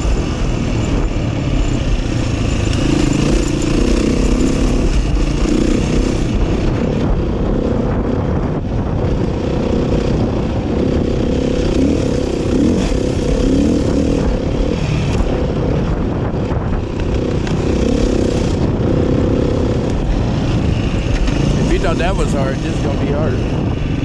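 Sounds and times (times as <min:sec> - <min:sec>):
dirt bike engine: 0:00.0 - 0:24.0
wind noise: 0:00.0 - 0:24.0.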